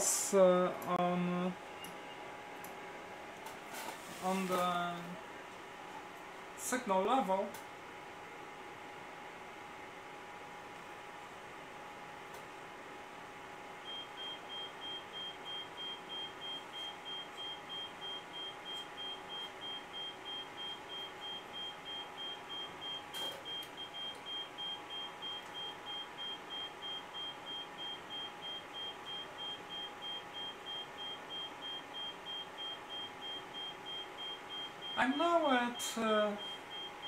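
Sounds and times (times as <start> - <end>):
faint steady hum: 0.0 - 37.0
oscilloscope beeping: 13.9 - 35.1, 35.8 - 37.0.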